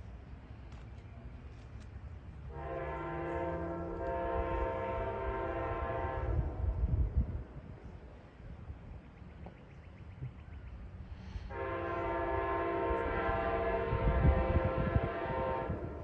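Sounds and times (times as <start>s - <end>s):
train horn blast: 2.5s - 7.0s, 11.3s - 16.0s.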